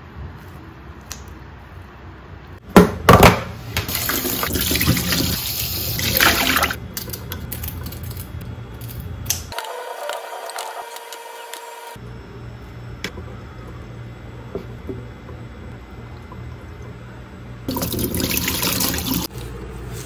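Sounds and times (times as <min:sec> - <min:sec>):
tap water running into sink: 0:03.9 - 0:06.8, 0:17.7 - 0:19.3.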